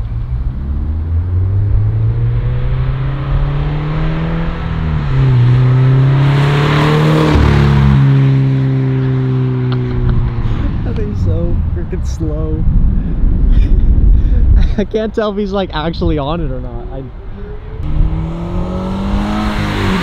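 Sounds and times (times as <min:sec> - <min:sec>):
car engine accelerating past: 0:00.0 - 0:10.8, 0:17.1 - 0:20.0.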